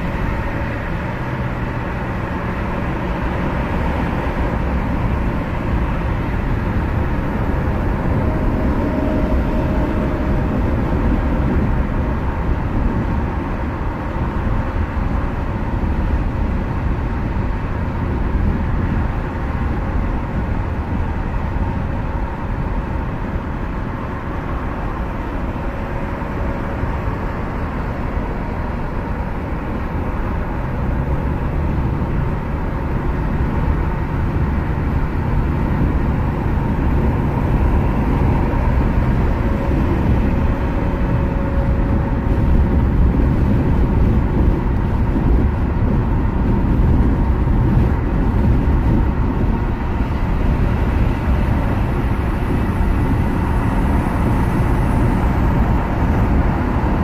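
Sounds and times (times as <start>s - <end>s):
car road noise at highway speed: 0.0s - 57.0s.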